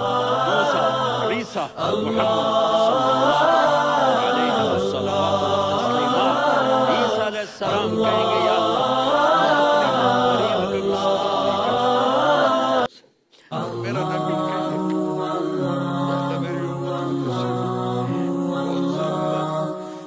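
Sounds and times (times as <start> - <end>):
a cappella voices chanting: 0.0 - 20.0.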